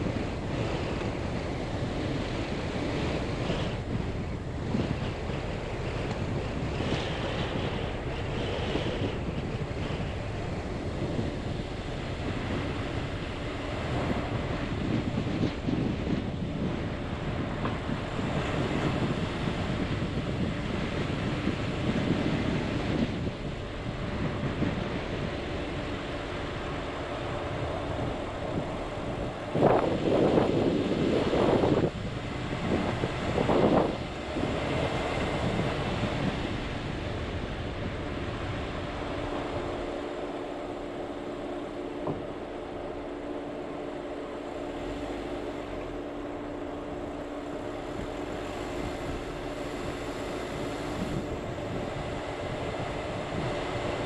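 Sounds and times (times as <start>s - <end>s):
vehicle engine and tyre noise: 0.0s - 54.0s
wind: 0.0s - 54.0s.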